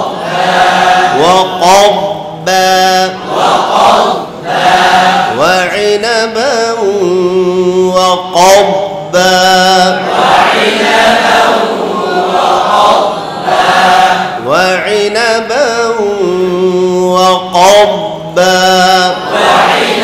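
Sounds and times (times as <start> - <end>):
group chanting in unison: 0.0 - 5.8, 9.6 - 14.8, 18.5 - 20.0
man chanting with held notes: 0.9 - 4.2, 5.2 - 10.3, 14.3 - 20.0.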